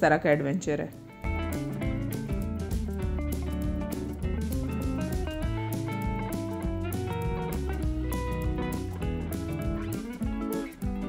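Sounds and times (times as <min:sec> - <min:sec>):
plucked guitar music: 0:00.3 - 0:11.0.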